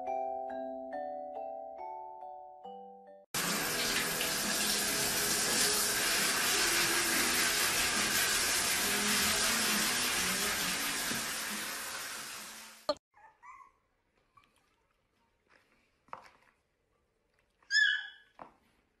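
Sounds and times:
shower head spraying water: 3.4s - 13.0s.

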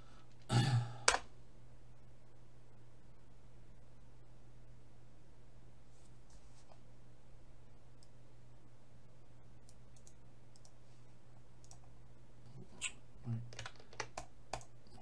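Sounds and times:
low steady hum: 0.0s - 15.0s
mouse and keyboard clicks: 9.6s - 10.8s.

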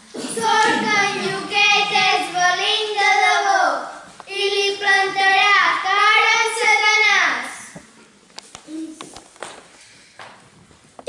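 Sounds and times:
girls singing: 0.1s - 7.8s.

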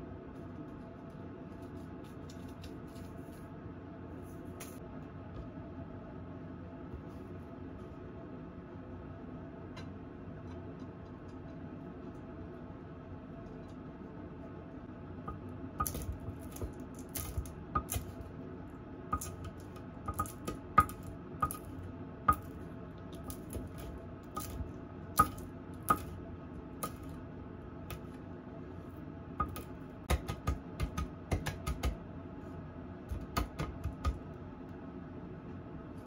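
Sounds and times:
knife chopping on wooden board: 29.4s - 32.0s, 33.1s - 34.2s.

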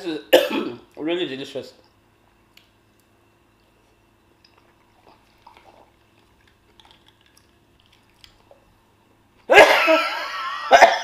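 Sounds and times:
woman coughing harshly: 0.3s - 0.8s, 9.5s - 11.0s
chewing and mouth clicks: 1.8s - 8.7s.

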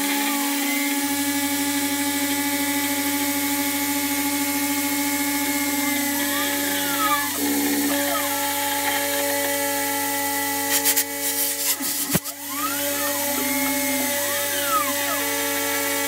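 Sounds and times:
cnc router milling metal: 0.0s - 16.0s
lubricant blast hiss: 10.6s - 12.5s.

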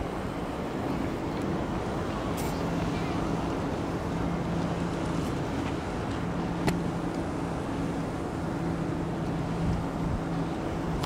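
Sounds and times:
low mechanical hum: 0.0s - 11.0s
rushing background noise: 0.0s - 11.0s.

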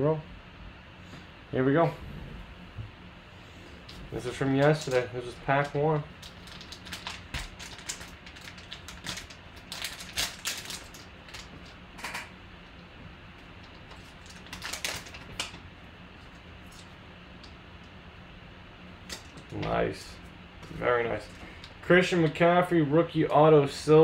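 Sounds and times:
foil wrapper tearing and crinkling: 6.1s - 11.8s, 13.6s - 15.6s.

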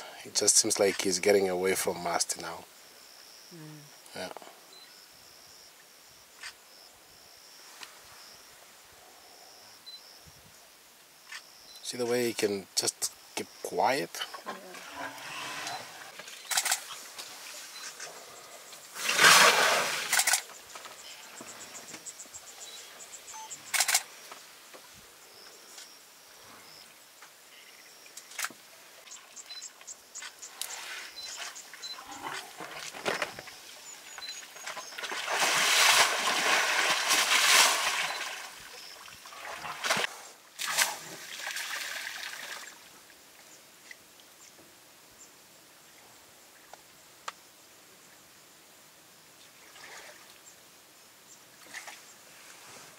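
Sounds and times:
water splashing and trickling: 34.4s - 42.9s, 49.6s - 50.4s.

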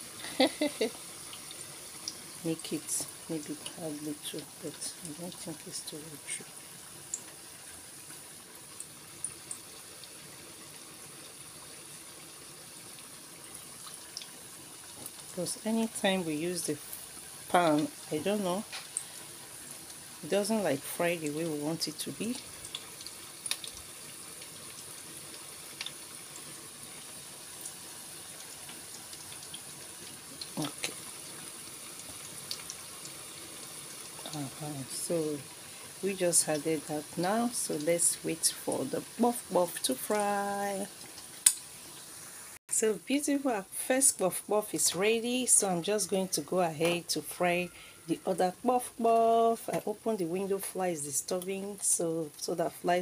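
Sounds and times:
hot oil hissing in a fryer: 0.0s - 53.0s
oil popping and crackling: 0.1s - 16.0s, 16.6s - 42.6s.

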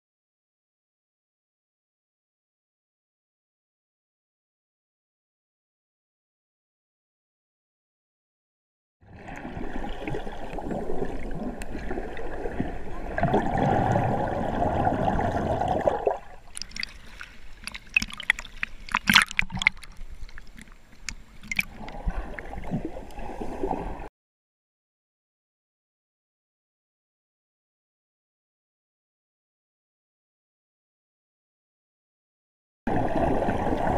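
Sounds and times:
dull underwater churning: 9.0s - 24.1s, 32.9s - 33.9s
water splashes and drips: 9.2s - 23.9s.

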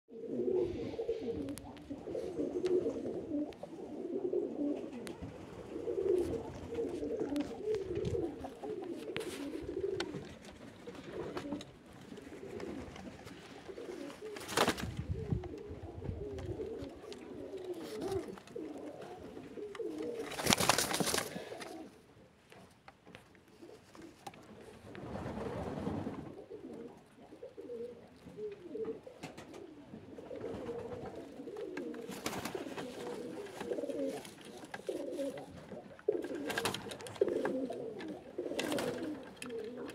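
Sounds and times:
pigeons cooing: 0.1s - 22.1s, 23.4s - 39.9s
rustling bursts: 7.8s - 15.4s, 20.0s - 21.6s.

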